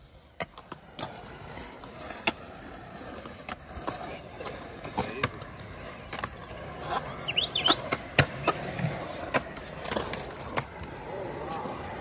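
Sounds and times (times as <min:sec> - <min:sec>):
skateboard rolling on concrete: 0:00.0 - 0:12.0
skateboard clacking over joints: 0:00.1 - 0:12.0.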